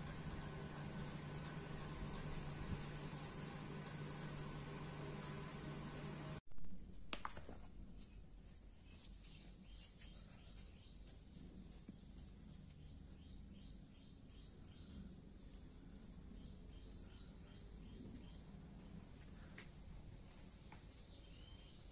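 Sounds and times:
steady hiss: 0:00.0 - 0:06.4
low hum: 0:00.0 - 0:06.9.

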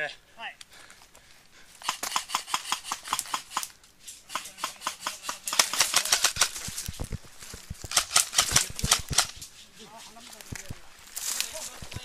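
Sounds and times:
airsoft gun bursts: 0:01.8 - 0:06.7, 0:07.9 - 0:09.5.

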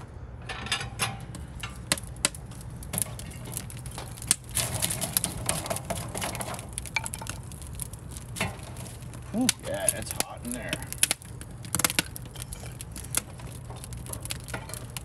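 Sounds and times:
wood fire crackling: 0:00.0 - 0:15.0.

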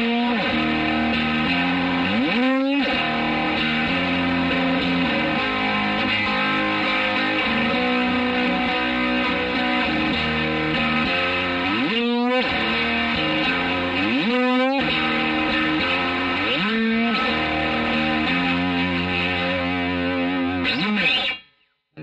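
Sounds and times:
electric guitar chords with flanger: 0:00.0 - 0:21.5.

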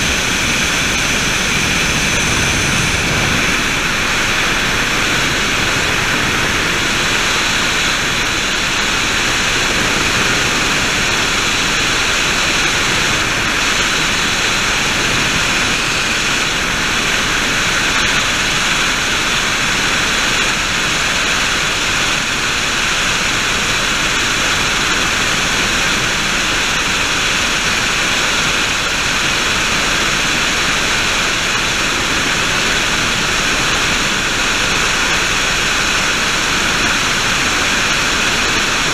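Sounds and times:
high whine: 0:00.0 - 0:19.4
helicopter engine and rotor drone: 0:00.0 - 0:38.9.

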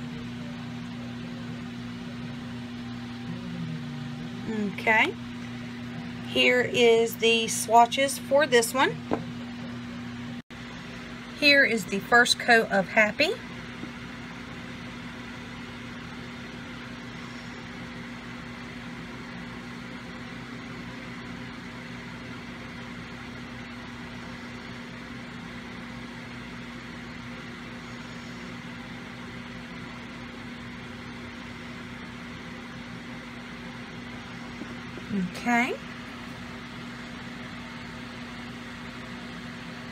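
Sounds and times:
room background hum: 0:00.0 - 0:39.9.

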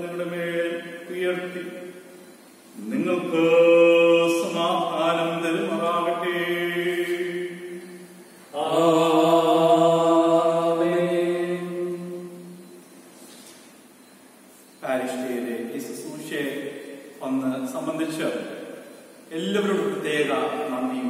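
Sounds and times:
man chanting: 0:00.0 - 0:02.0, 0:02.8 - 0:08.0, 0:08.6 - 0:12.5, 0:19.3 - 0:21.0.

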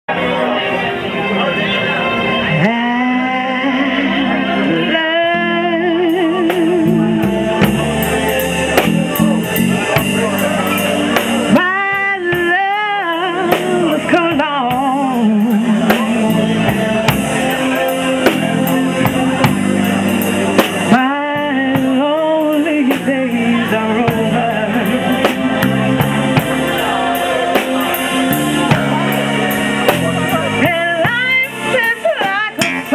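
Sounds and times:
electric bass: 0:00.1 - 0:32.9
keyboard: 0:00.1 - 0:32.9
woman singing with vibrato: 0:02.5 - 0:07.6, 0:11.5 - 0:19.6, 0:20.8 - 0:26.8, 0:30.4 - 0:32.9
drum kit with cymbals: 0:05.6 - 0:32.9.

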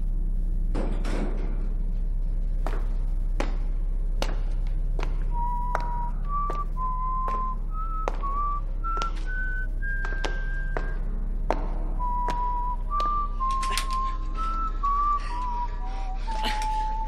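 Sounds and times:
low hum: 0:00.0 - 0:17.0
person whistling a slow tune: 0:05.3 - 0:11.0, 0:12.0 - 0:17.0.

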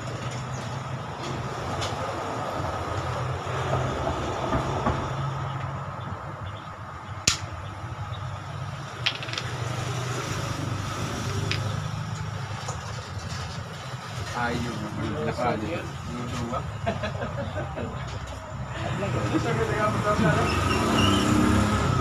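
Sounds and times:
sharp clicks: 0:07.2 - 0:07.6.

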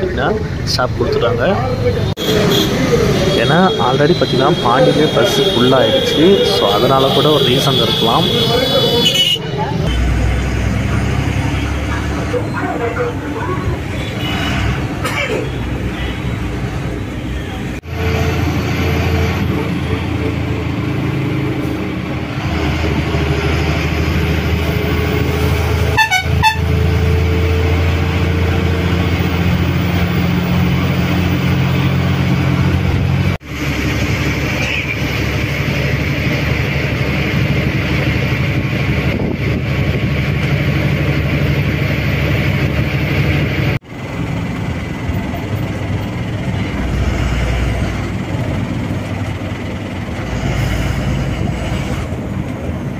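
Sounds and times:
diesel engine running: 0:00.0 - 0:52.9
vehicle horn wavering: 0:02.2 - 0:10.0, 0:13.9 - 0:14.9, 0:25.9 - 0:26.9.

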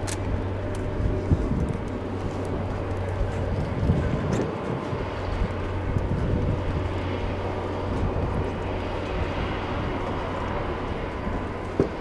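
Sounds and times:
jet engines running steadily: 0:00.0 - 0:12.0.

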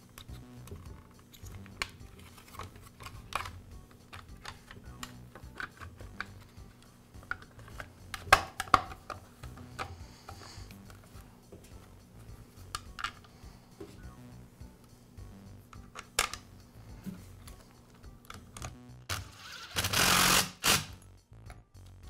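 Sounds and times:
plastic cover clicks and knocks: 0:08.2 - 0:09.9.

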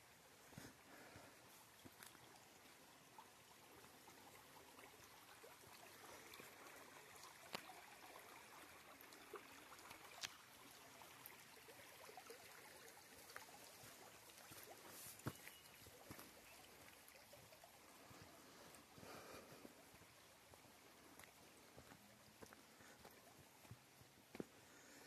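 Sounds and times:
stream trickling: 0:00.0 - 0:25.0.

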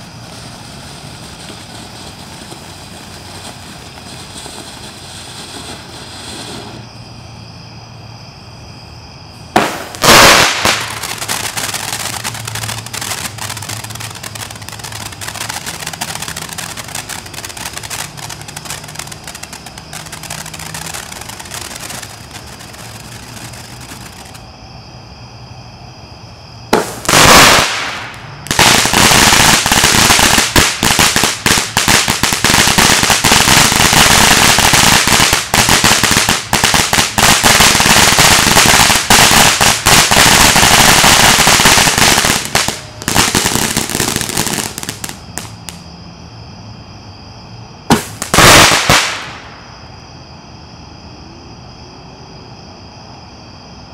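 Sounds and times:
firework whooshing spurt: 0:00.0 - 0:06.9, 0:09.6 - 0:24.4, 0:47.9 - 0:49.5
firework hiss with crackling: 0:00.0 - 0:07.0, 0:09.5 - 0:24.5, 0:26.7 - 0:45.9, 0:47.9 - 0:49.8.

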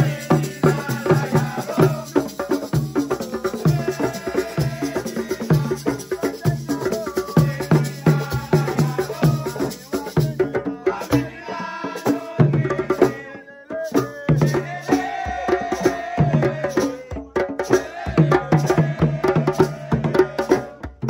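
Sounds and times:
rattle shaking: 0:00.0 - 0:10.4
person singing: 0:00.0 - 0:20.8
djembe drumming: 0:00.0 - 0:21.0.

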